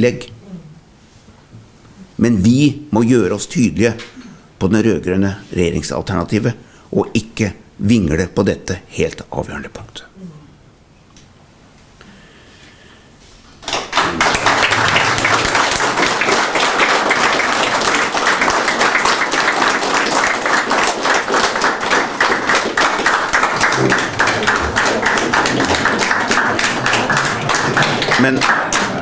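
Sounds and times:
audience applauding: 13.6s - 29.0s.

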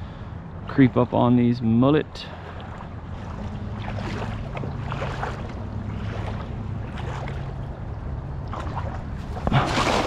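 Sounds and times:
steady low hum: 0.0s - 10.0s
net splashing into water: 2.6s - 7.6s, 8.4s - 10.0s.

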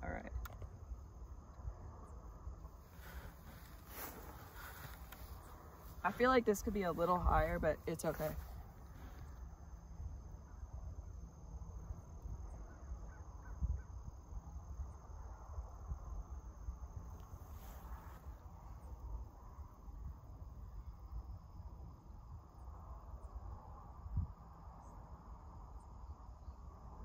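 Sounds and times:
insect drone: 0.0s - 27.0s
wind rumble on microphone: 0.0s - 27.0s.

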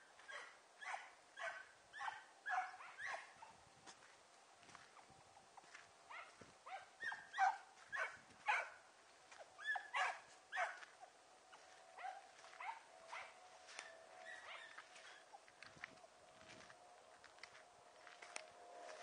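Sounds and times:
hunting dogs yelping: 0.2s - 3.6s, 4.8s - 15.8s.

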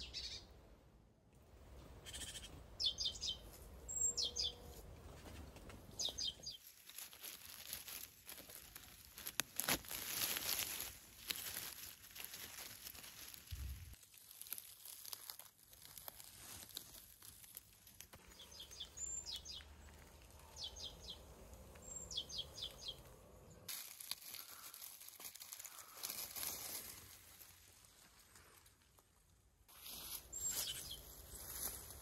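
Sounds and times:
bird chirping: 0.0s - 0.6s, 2.0s - 4.8s, 5.9s - 6.6s, 18.2s - 23.7s, 30.3s - 31.3s
grass and dry leaves rustling: 3.2s - 32.0s.

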